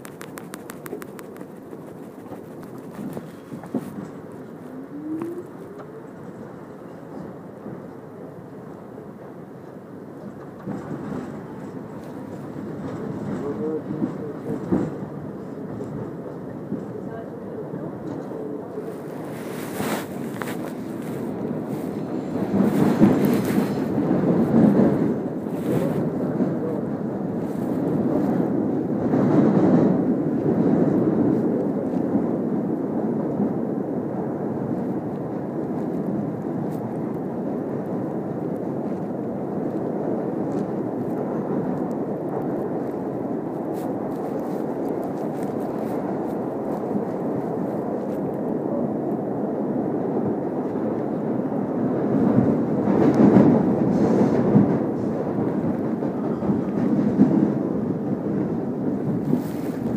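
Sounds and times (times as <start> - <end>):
faint clicks: 0.0 - 3.1
subway train rumbling: 0.0 - 59.9.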